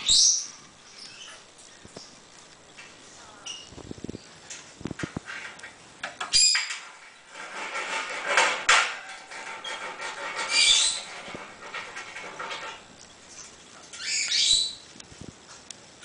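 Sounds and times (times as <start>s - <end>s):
parrot clattering on metal cage: 6.2s - 12.8s.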